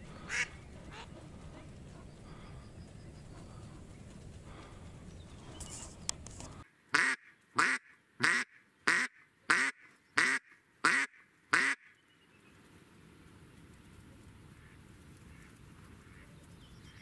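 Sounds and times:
duck quacking loudly: 0:00.3 - 0:01.1, 0:06.9 - 0:11.9.

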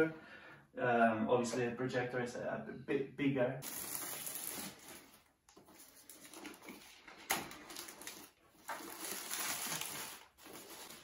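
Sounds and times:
plastic wrap rustling and crinkling: 0:03.6 - 0:11.0.

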